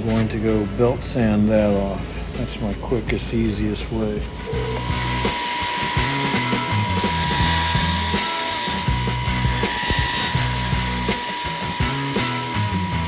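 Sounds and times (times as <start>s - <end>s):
background music: 4.3s - 13.0s
belt sander grinding metal: 4.3s - 13.0s.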